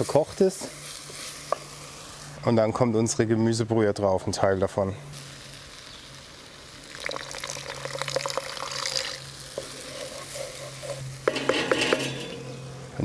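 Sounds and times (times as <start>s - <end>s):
stock sizzling in a hot pan: 0.0s - 2.8s, 5.1s - 13.0s
wooden spoon scraping rice in pan: 9.6s - 12.4s.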